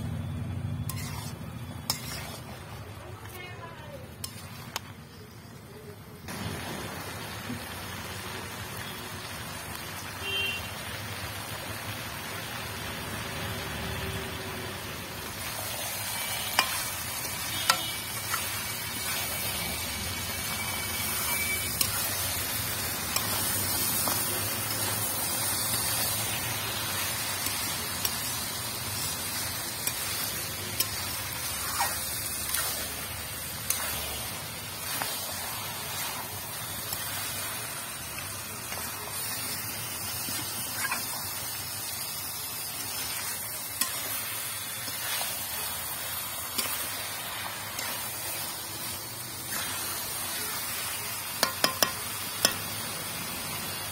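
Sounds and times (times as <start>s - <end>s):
meat sizzling in a pan: 0.5s - 5.5s, 6.2s - 53.9s
spatula stirring: 0.8s - 5.4s, 15.3s - 50.8s, 51.4s - 52.6s
spatula clicking on pan: 51.4s - 52.7s.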